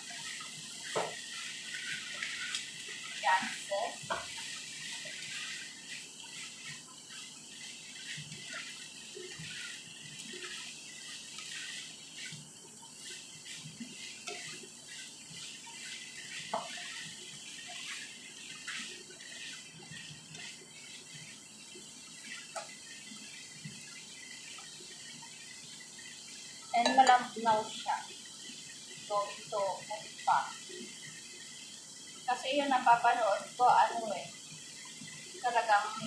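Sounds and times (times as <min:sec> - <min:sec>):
spatula scraping a pan: 0:00.0 - 0:21.5, 0:22.2 - 0:24.7
chicken sizzling in a frying pan: 0:00.0 - 0:36.0.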